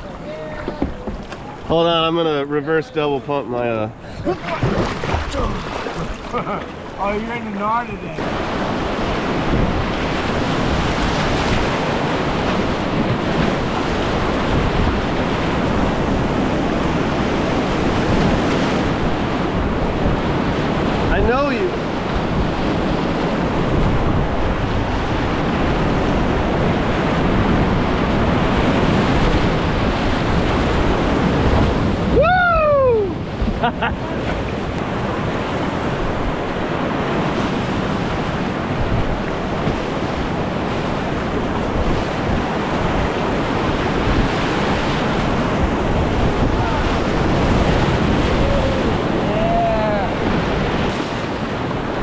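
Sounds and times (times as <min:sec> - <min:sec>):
wind buffeting microphone: 0:03.9 - 0:52.0
person shouting: 0:32.1 - 0:33.2, 0:48.3 - 0:50.2
river rapids rushing: 0:40.2 - 0:52.0.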